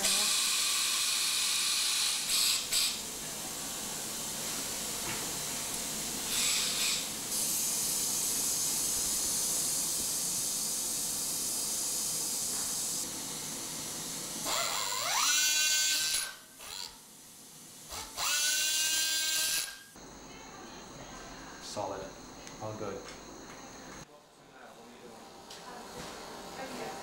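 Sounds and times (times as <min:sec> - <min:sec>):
power drill whine: 0:00.0 - 0:03.0, 0:06.3 - 0:13.0, 0:14.4 - 0:16.9, 0:17.9 - 0:20.1.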